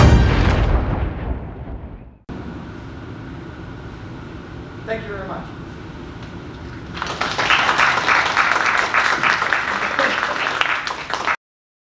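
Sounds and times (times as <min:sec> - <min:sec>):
audience applauding: 0:06.9 - 0:11.4.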